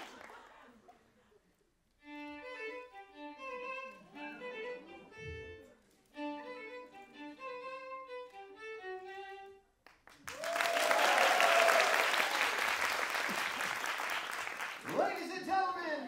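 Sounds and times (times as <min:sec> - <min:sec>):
audience applause and cheering: 0:00.0 - 0:00.6, 0:10.0 - 0:15.9
solo violin melody: 0:02.0 - 0:09.8.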